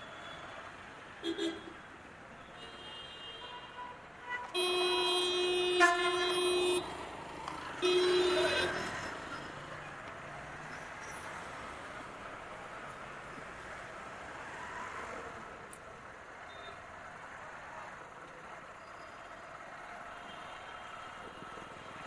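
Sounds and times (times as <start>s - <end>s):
traffic noise: 0.0s - 22.0s
vehicle horn honking: 2.7s - 6.9s, 7.8s - 9.0s.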